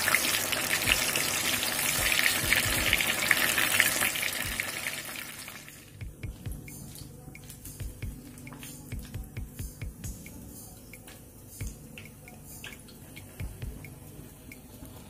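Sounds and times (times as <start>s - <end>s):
food deep-frying in hot oil: 0.0s - 5.9s.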